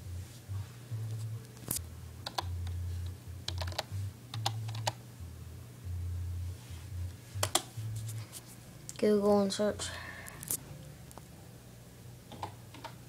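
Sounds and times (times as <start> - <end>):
low hum: 0.0 - 9.0.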